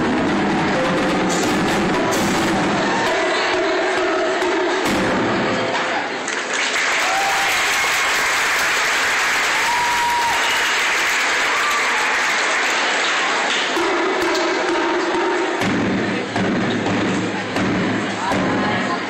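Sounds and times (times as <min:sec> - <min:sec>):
audience applauding: 0:06.2 - 0:13.8.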